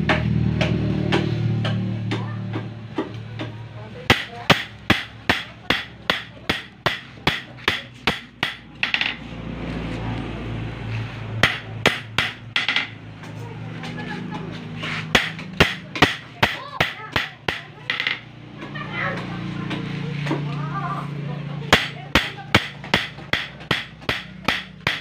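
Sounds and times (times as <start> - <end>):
hammer striking metal on anvil: 4.1 - 9.2, 11.4 - 13.0, 15.1 - 18.3, 21.7 - 25.0.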